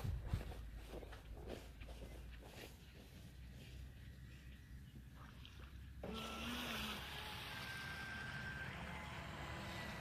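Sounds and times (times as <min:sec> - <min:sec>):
faint high motor whine: 0:03.4 - 0:10.0.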